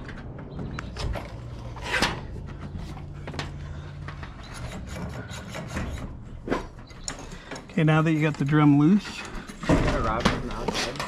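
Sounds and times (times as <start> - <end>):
hands scraping metal hardware: 4.0 - 7.5.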